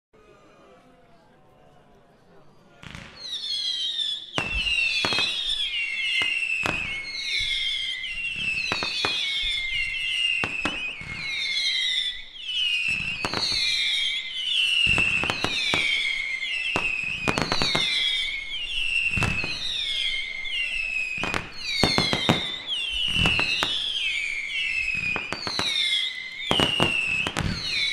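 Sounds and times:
whistling firework shots: 0:02.8 - 0:27.9
firework launch pops and cracks: 0:14.8 - 0:18.2, 0:19.1 - 0:19.9, 0:21.2 - 0:27.9.

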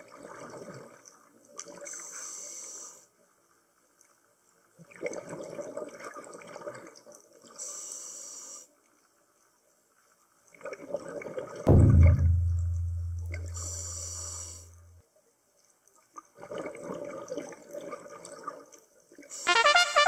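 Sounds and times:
loud deep boom: 0:11.7 - 0:14.8
brass fanfare: 0:19.5 - 0:20.0.

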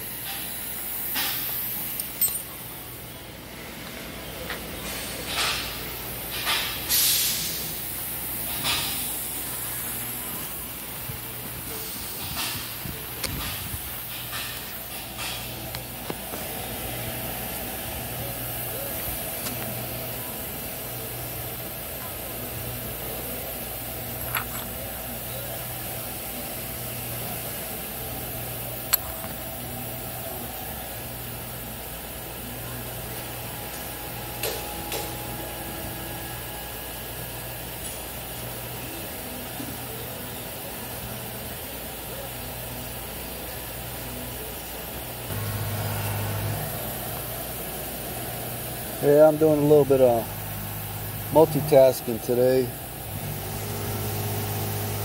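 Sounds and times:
shop machinery humming: 0:00.0 - 0:55.0
compressed air hissing: 0:06.6 - 0:10.6.

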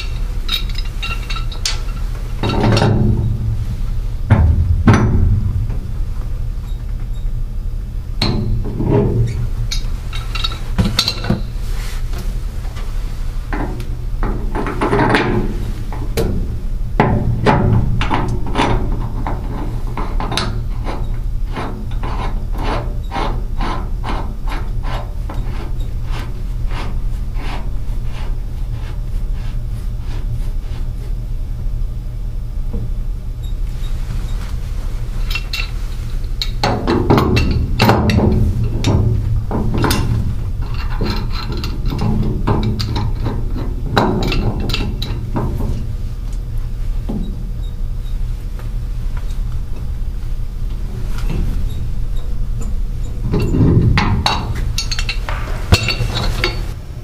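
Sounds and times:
metal pipe fittings clinking: 0:00.0 - 0:03.1, 0:09.7 - 0:11.6, 0:35.2 - 0:39.0, 0:39.7 - 0:45.2, 0:51.7 - 0:56.8
steady low hum: 0:00.0 - 0:57.0.

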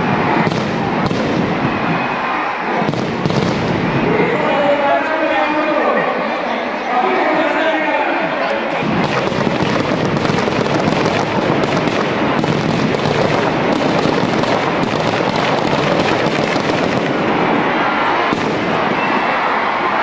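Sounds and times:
firecrackers crackling: 0:00.0 - 0:04.2, 0:08.7 - 0:20.0.

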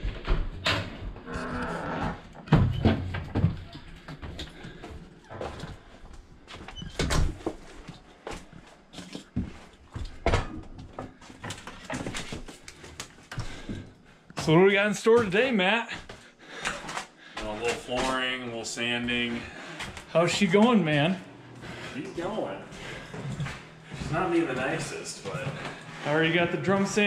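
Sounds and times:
door creaking open: 0:00.0 - 0:03.9, 0:06.6 - 0:07.5.

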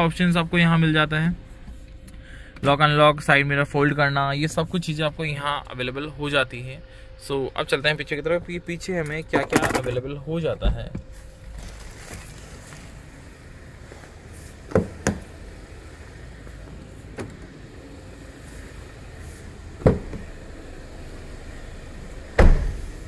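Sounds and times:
steady low hum: 0:00.0 - 0:23.0
car doors opening and shutting: 0:09.0 - 0:23.0
car door thud: 0:14.7 - 0:15.3, 0:19.8 - 0:20.3, 0:22.3 - 0:23.0.

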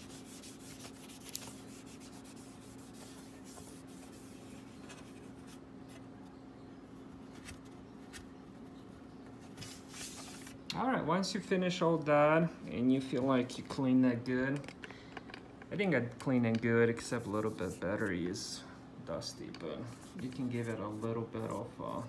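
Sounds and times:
tissue rubbing on metal: 0:00.0 - 0:05.4, 0:17.0 - 0:18.2, 0:19.8 - 0:22.0.

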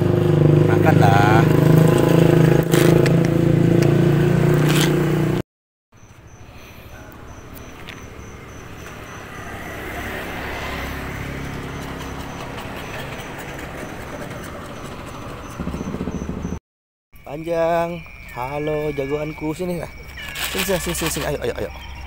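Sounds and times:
vehicle engine humming: 0:00.0 - 0:05.4, 0:06.0 - 0:16.6.

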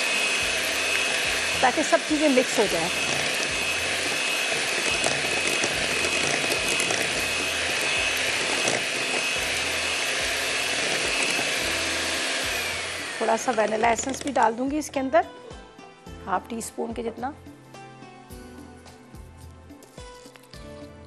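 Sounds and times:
electric hand beater whirring: 0:00.0 - 0:14.6.

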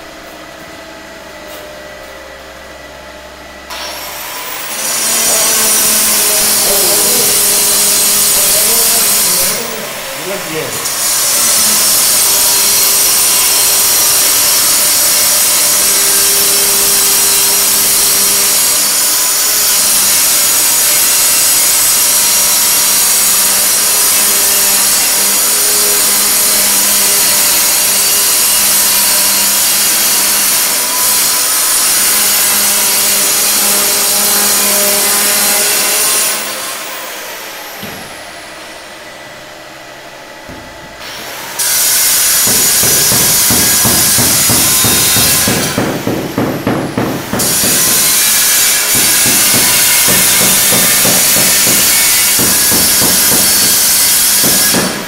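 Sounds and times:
power tool grinding: 0:03.7 - 0:55.0.

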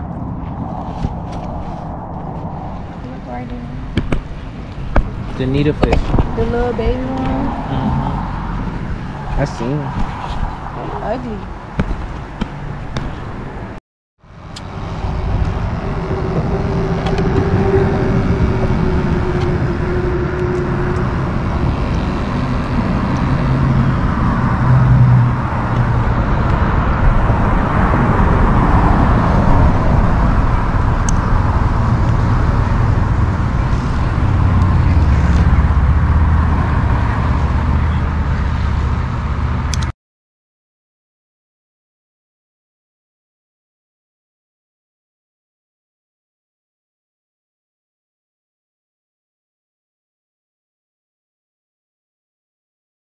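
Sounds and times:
road traffic passing: 0:00.0 - 0:39.9.

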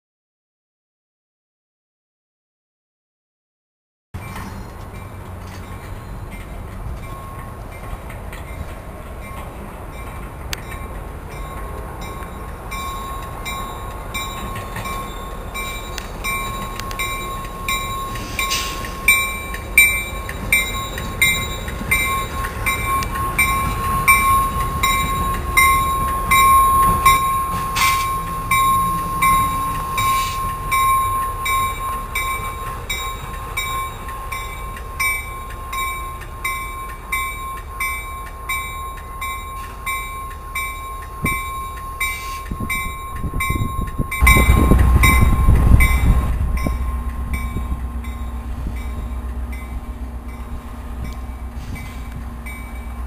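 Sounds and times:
diesel locomotive engine rumble: 0:04.2 - 0:53.0
steady high tone: 0:11.3 - 0:53.0.

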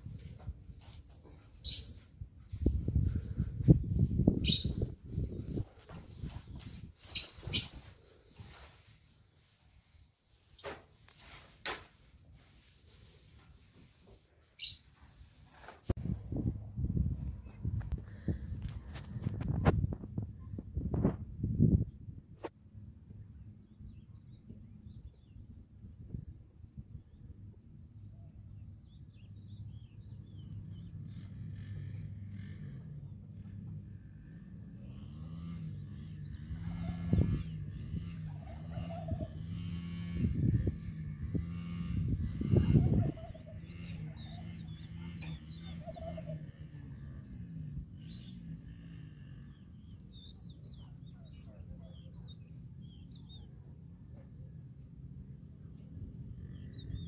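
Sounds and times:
small birds chirping: 0:01.3 - 0:09.6, 0:14.5 - 0:15.7, 0:26.6 - 0:54.6, 0:55.6 - 0:57.0
low outdoor rumble: 0:16.0 - 0:57.0.

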